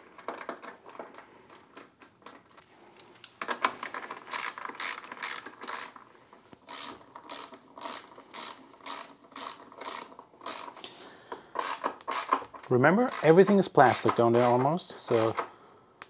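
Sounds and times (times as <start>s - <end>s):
socket ratchet clicking: 4.3s - 6.0s, 6.7s - 10.8s, 11.6s - 15.4s.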